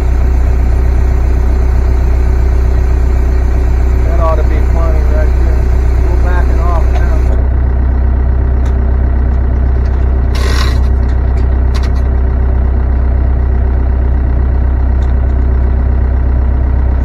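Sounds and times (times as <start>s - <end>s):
machine motor humming: 0.0s - 12.1s.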